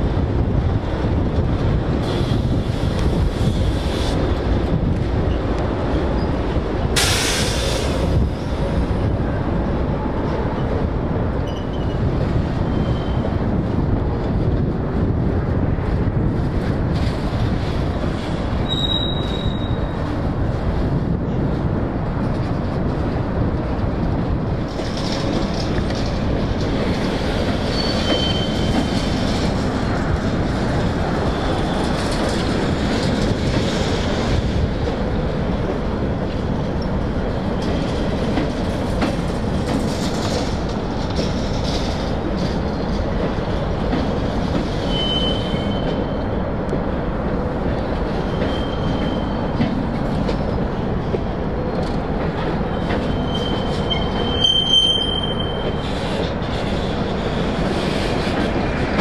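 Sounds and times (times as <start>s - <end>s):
freight train cars rolling: 0.0s - 59.0s
high-pitched wheel squeals: 18.6s - 19.9s, 27.7s - 28.8s, 44.9s - 46.0s, 48.3s - 49.5s, 52.8s - 55.8s.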